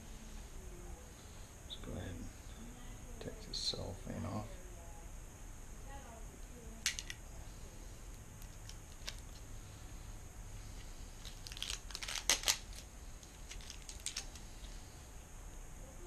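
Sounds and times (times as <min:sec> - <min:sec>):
cellophane crinkling and tearing: 0:08.4 - 0:09.4, 0:11.2 - 0:14.5.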